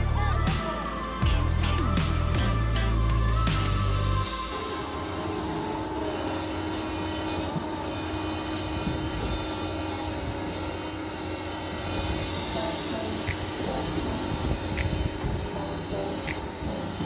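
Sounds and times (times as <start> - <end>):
excavator diesel engine: 0.0 - 17.0.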